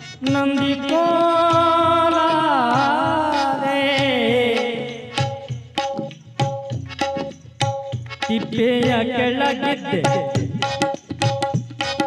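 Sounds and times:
man singing: 0.0s - 5.8s, 8.2s - 11.0s.

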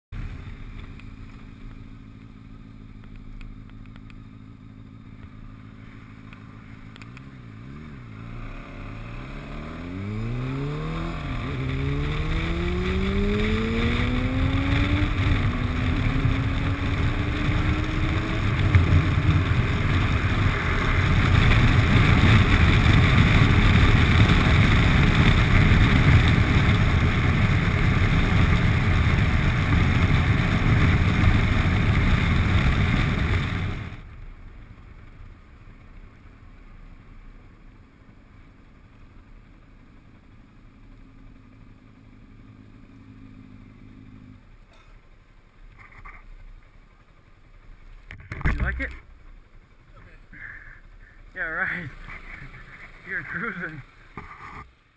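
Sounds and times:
motorbike engine accelerating: 0.2s - 34.2s, 48.2s - 54.7s
wind rushing over microphone: 9.8s - 34.0s.

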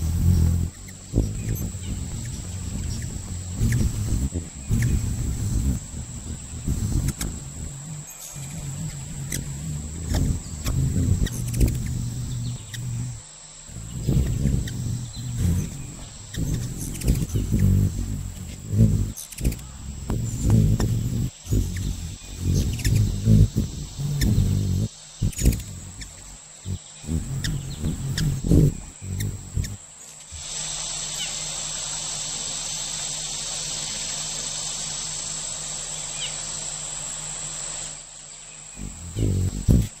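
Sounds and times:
loud low-pitched sounds: 0.0s - 29.8s
high-pitched insect chorus: 0.0s - 40.0s
hummingbird wings humming: 0.0s - 40.0s.

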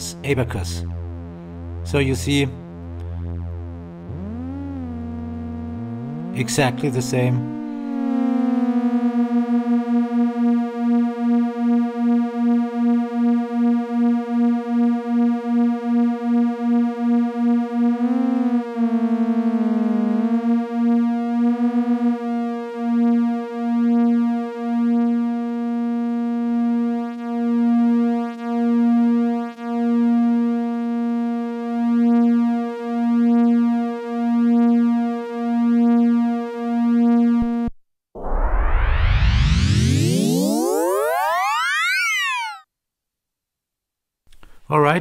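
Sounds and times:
buzzy pulsing synth drone: 0.8s - 42.6s.

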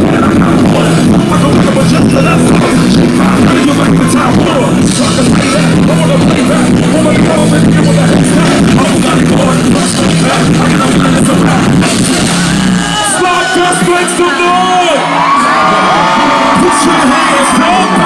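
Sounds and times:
singing vocals: 0.0s - 13.4s
heavy bass line and beat: 0.0s - 14.7s
live concert music: 0.0s - 18.0s.

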